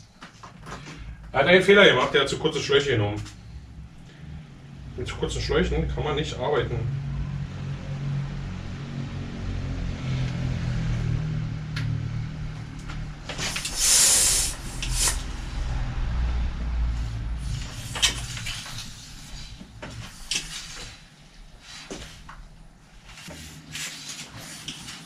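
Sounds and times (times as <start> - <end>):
air hissing from valve: 13.4 - 15.6.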